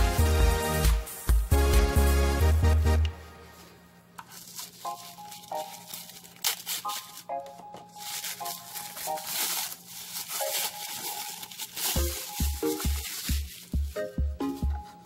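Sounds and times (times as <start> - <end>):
paper and plastic bag rustling: 4.2 - 15.0
soft plinking background music: 4.7 - 15.0.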